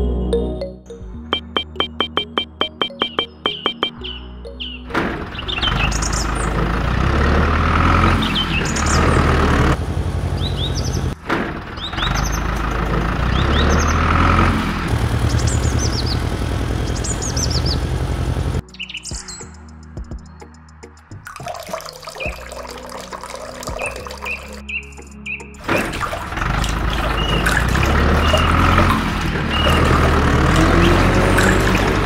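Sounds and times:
birds chirping: 1.4s - 6.8s, 8.1s - 9.5s, 10.4s - 11.2s, 11.8s - 20.6s, 23.3s - 32.0s
tractor engine running: 4.9s - 18.6s, 25.6s - 32.0s.

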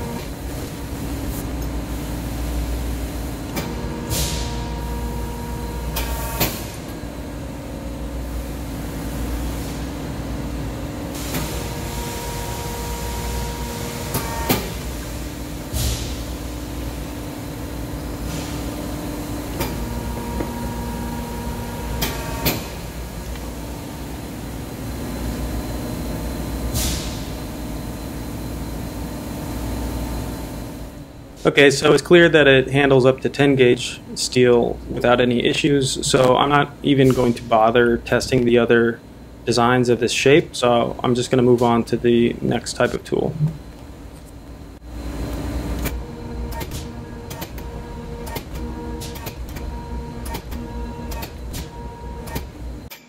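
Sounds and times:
press brake humming: 11.1s - 28.0s, 42.8s - 53.0s.

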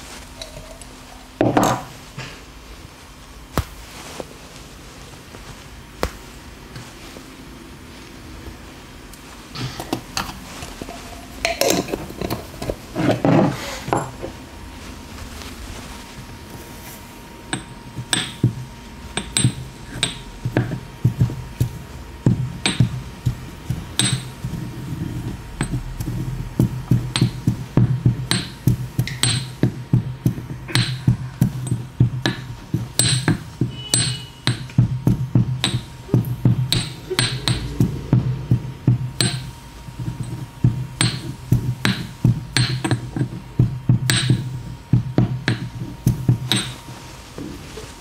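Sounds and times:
pestle pounding in stone mortar: 17.5s - 46.8s.

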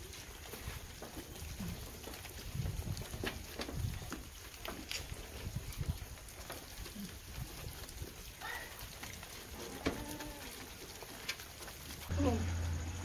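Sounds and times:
goats feeding at trough: 0.0s - 13.0s.

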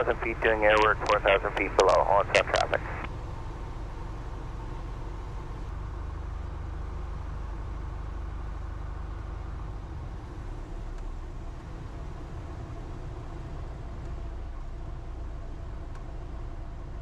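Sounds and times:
airplane engine drone: 0.0s - 8.2s.

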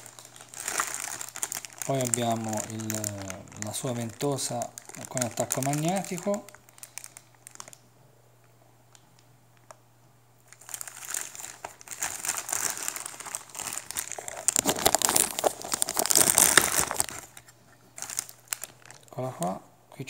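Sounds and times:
plastic bags crinkling: 0.0s - 7.8s, 10.5s - 19.2s.

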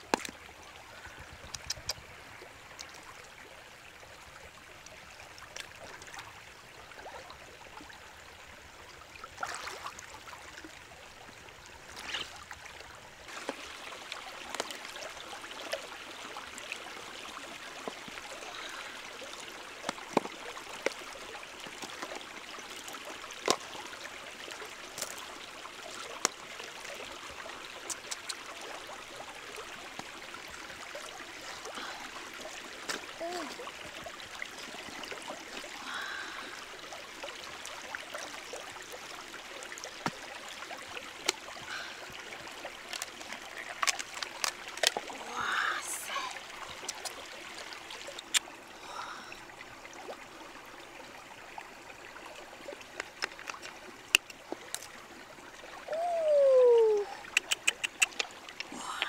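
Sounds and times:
stream running over stones: 0.0s - 59.0s
water splashing: 9.3s - 10.0s.

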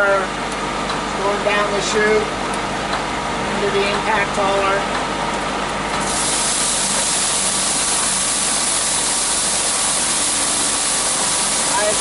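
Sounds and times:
electric motor running: 6.0s - 12.0s
rice hissing through huller: 6.0s - 12.0s.

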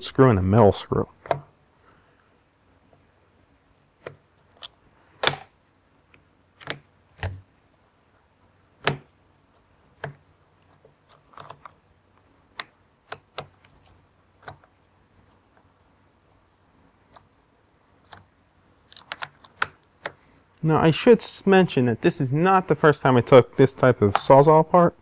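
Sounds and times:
plastic parts knocking: 5.2s - 5.5s.

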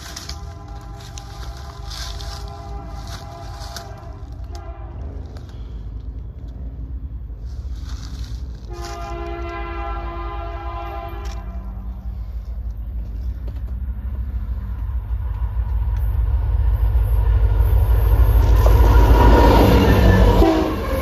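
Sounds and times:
train horn blasts: 0.0s - 5.8s, 8.6s - 12.0s, 18.6s - 21.0s
train rumble: 0.0s - 21.0s.

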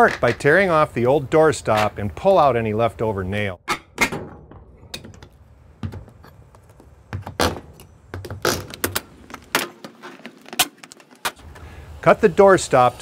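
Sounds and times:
wood knocks and scrapes: 0.0s - 0.5s, 4.0s - 11.4s.

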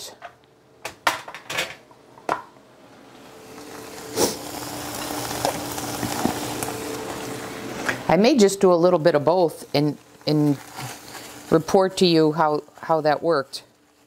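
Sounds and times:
faint steady hum: 0.0s - 14.0s
meat sizzling in a skillet: 3.4s - 14.0s.

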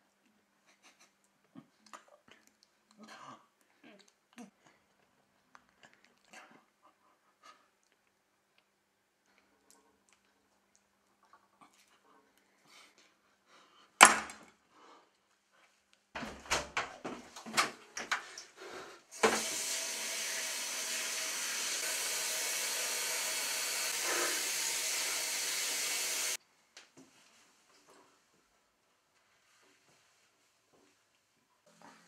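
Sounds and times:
tap water running into sink: 19.2s - 26.4s.

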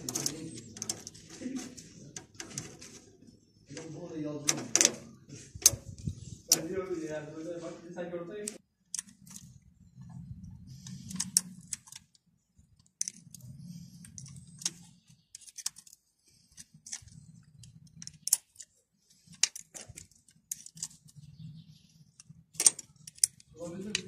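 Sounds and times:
wrench clicking on metal bolts: 0.0s - 1.2s, 22.2s - 24.0s.

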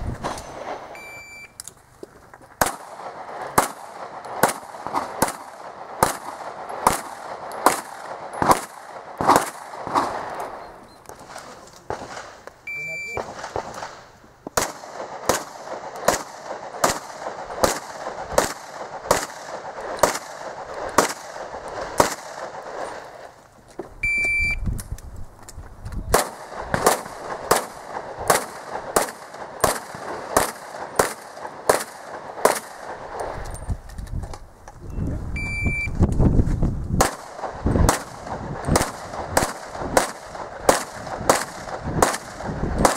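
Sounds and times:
shot timer high beep: 1.0s - 1.6s, 12.7s - 13.2s, 24.0s - 24.6s, 34.9s - 36.0s
rapid pistol shots: 2.6s - 10.6s, 13.1s - 14.0s, 14.6s - 23.1s, 26.1s - 33.4s, 37.0s - 42.9s.

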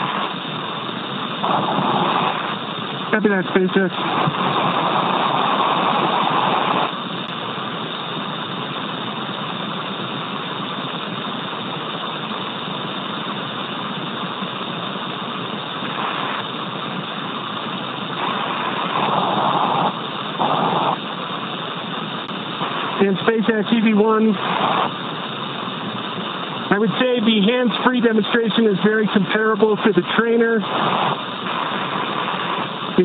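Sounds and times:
radio channel hiss: 0.0s - 33.0s.

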